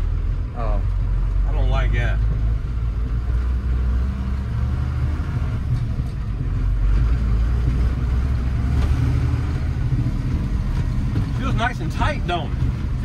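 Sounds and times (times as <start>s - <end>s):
truck engine pulling: 0.0s - 13.0s.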